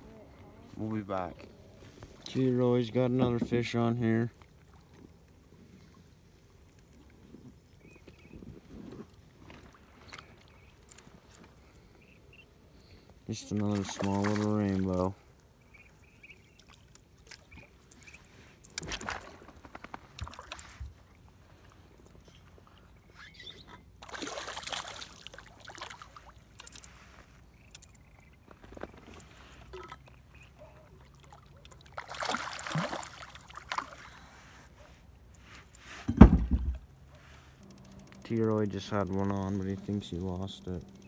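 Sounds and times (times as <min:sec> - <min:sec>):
fish splashing at water surface: 0:24.0 - 0:26.8, 0:31.3 - 0:34.2
loud low thump: 0:36.1 - 0:36.8.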